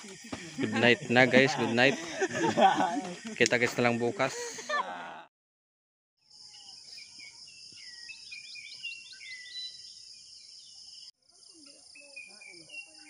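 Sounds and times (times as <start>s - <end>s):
birds calling: 0.0s - 4.8s.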